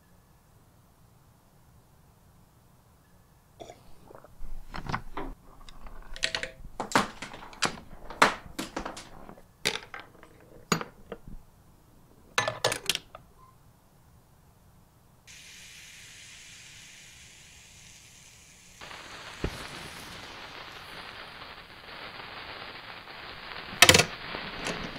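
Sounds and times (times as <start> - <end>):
balls and metal pieces clacking: 4.1 - 11.4, 12.3 - 13.3.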